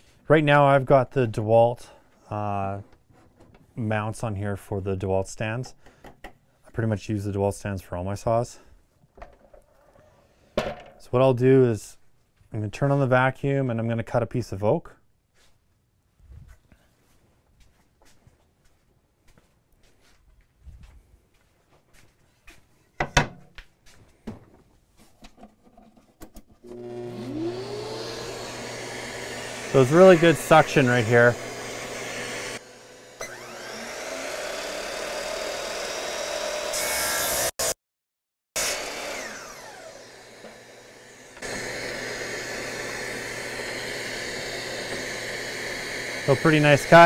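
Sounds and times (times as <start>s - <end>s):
dust extractor vacuum running: 26.6s - 36.8s, 38.6s - 47.0s
saw motor spinning down: 26.7s - 37.8s, 38.6s - 47.0s.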